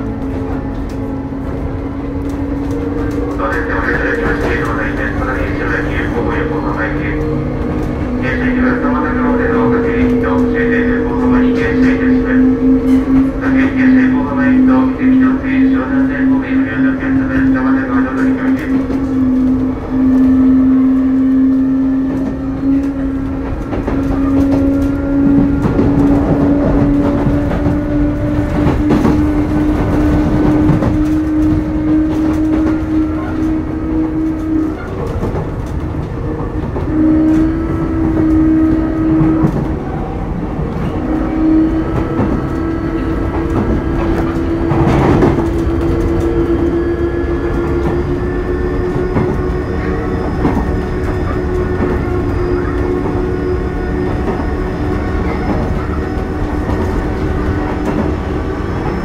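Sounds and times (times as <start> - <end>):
rail joints clicking: 0.0 - 59.0
wheels rumbling on rail: 0.0 - 59.0
electric train motor whine: 17.6 - 59.0.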